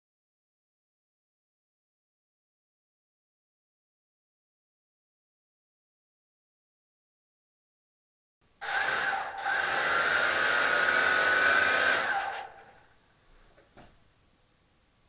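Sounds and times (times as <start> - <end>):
quadcopter motors whirring: 8.6 - 12.7.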